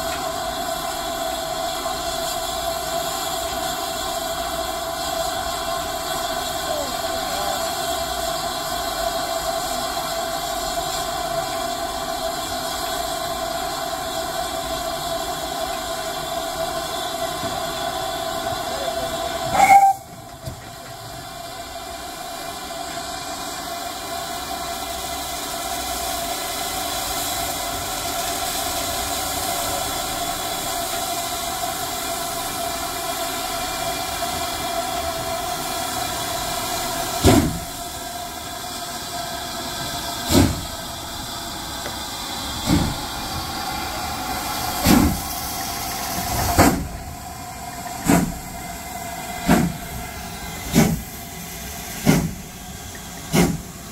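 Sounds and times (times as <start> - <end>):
steam locomotive hissing: 0.0 - 53.9
heavy exhaust chuffs: 39.6 - 53.9.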